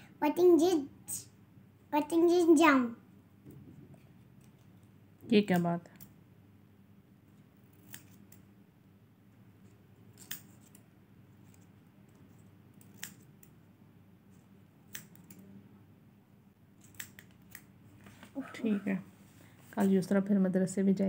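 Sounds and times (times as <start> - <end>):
scissors snipping: 7.7 - 8.4, 10.2 - 10.8, 12.8 - 13.6, 14.8 - 15.4, 16.8 - 17.7.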